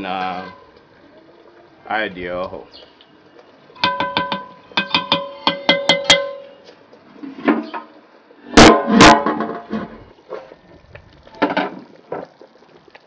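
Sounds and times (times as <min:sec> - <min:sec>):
pot lid clanking on pot: 0:03.8 - 0:06.5.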